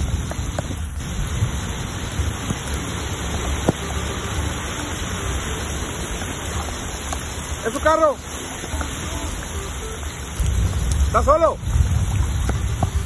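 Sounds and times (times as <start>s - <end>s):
heavy rain pouring: 0.0s - 13.0s
low rumble: 10.4s - 13.0s.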